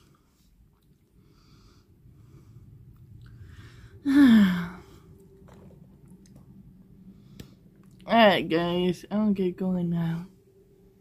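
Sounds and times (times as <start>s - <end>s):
faint steady hum: 0.0s - 11.0s
person sighing: 3.5s - 5.4s.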